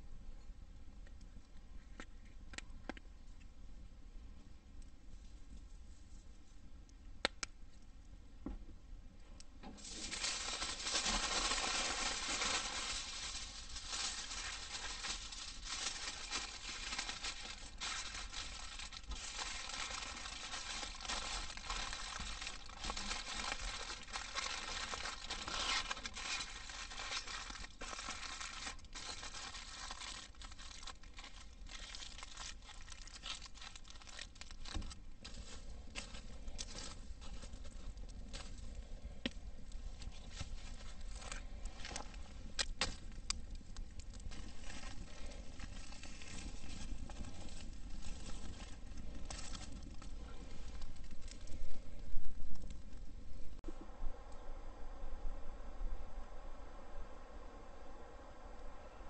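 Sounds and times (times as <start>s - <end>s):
aluminium foil crinkling: 9.7s - 39.0s, 39.7s - 51.9s.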